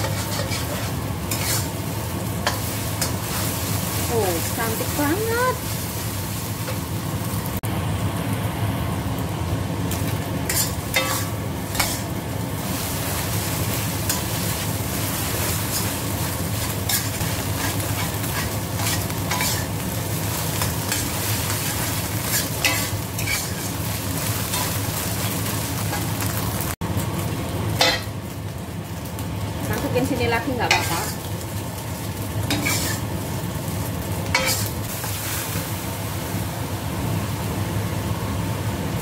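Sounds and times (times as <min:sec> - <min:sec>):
metal spatula scraping pan: 0:00.0 - 0:01.8, 0:10.5 - 0:12.1, 0:16.6 - 0:19.7, 0:20.6 - 0:23.7, 0:32.5 - 0:33.0, 0:34.3 - 0:34.8
eggs sizzling in hot fat: 0:00.0 - 0:39.0.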